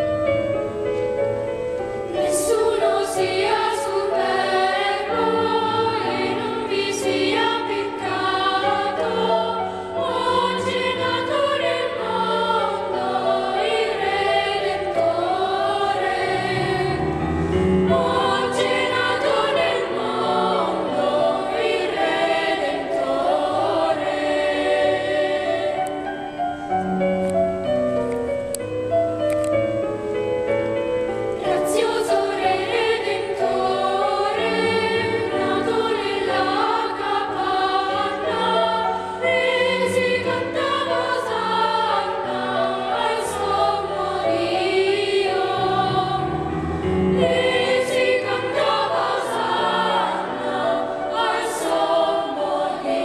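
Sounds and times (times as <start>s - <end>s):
children's choir singing: 2.0s - 26.9s, 31.1s - 53.0s.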